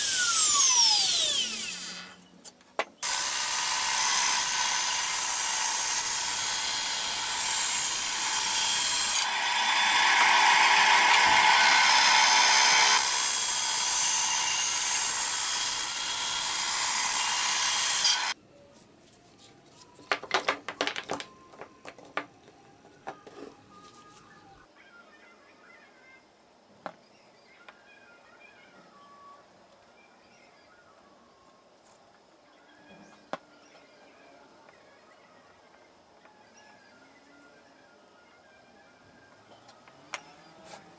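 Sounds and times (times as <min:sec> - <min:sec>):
band saw cutting plywood: 0:00.0 - 0:02.1, 0:03.0 - 0:18.4
wooden pieces knocking on bench: 0:20.0 - 0:23.5.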